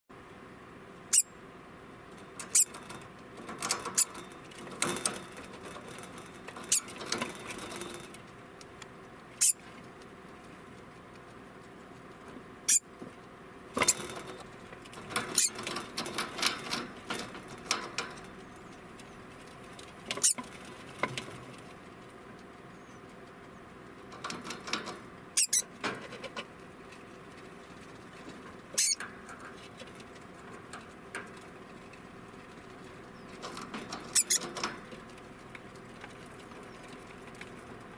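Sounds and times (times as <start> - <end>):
rodent alarm calls: 1.1 - 1.4, 9.4 - 9.6, 25.4 - 25.6.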